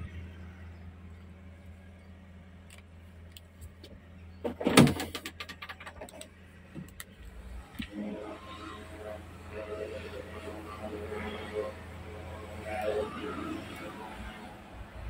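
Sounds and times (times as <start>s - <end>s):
excavator engine idling: 0.0s - 15.0s
clatter of cab parts: 2.7s - 8.0s.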